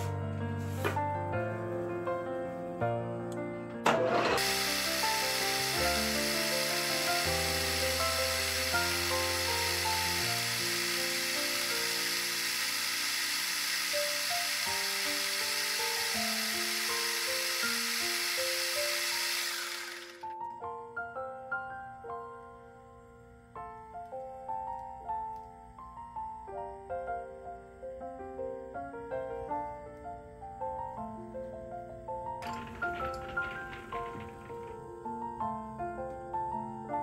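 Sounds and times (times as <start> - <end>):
gentle piano background music: 0.0 - 12.2, 13.9 - 37.0
lathe starting clunk: 3.7 - 20.3, 32.4 - 35.0
lathe spindle whirring: 3.8 - 20.3.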